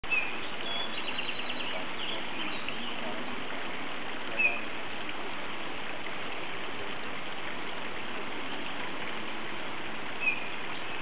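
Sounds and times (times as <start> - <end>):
creek water running: 0.0 - 11.0
bird chirps: 0.1 - 3.0.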